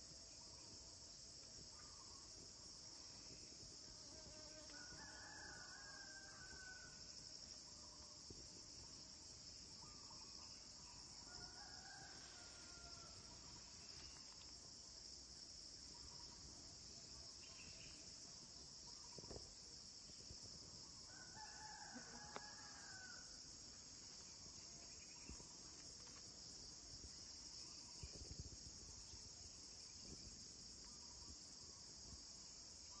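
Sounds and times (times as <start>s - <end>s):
insect chorus: 0.0s - 33.0s
distant rooster crowing: 4.7s - 7.0s, 11.2s - 13.4s, 21.1s - 23.4s.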